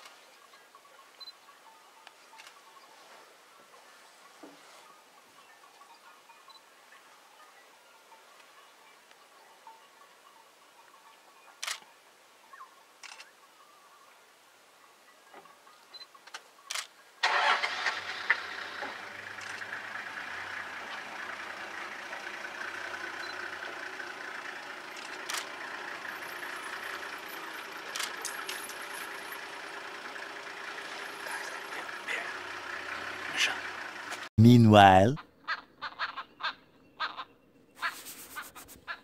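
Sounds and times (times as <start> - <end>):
vehicle engine starting and idling: 17.2 - 34.3.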